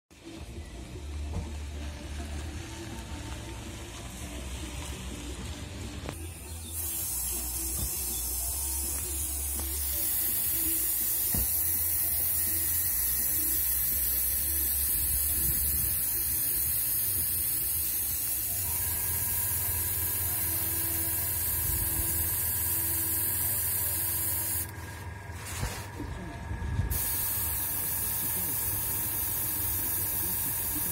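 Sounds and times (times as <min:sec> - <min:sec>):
airbrush spraying hiss: 0:06.1 - 0:24.9, 0:26.9 - 0:30.9.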